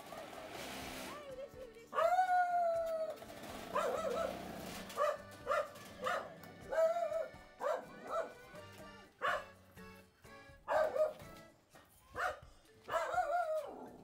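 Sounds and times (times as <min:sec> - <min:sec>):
background music: 0:00.0 - 0:14.0
dog whining yips: 0:02.0 - 0:08.3.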